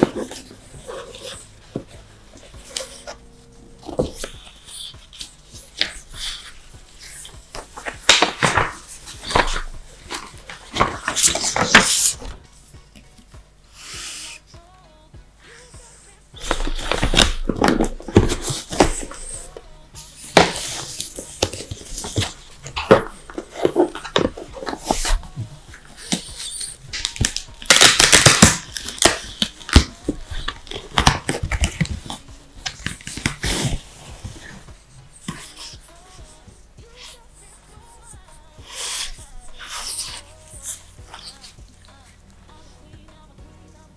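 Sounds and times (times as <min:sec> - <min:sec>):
dog sniffing and snuffling: 0:00.0 - 0:13.1, 0:15.5 - 0:42.2
paper sheets rustling: 0:03.9 - 0:12.4
wrapping rustling and crinkling: 0:16.4 - 0:35.8.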